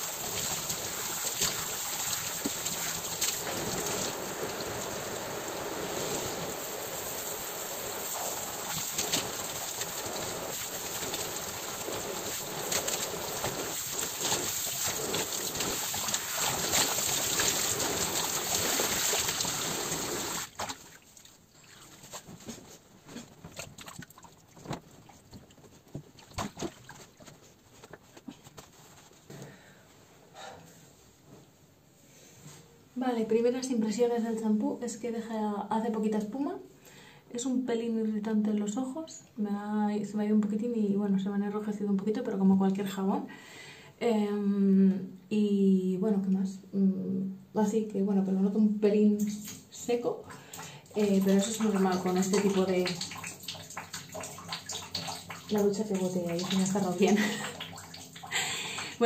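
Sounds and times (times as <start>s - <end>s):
shower spray running: 0.0s - 20.6s, 50.6s - 59.0s.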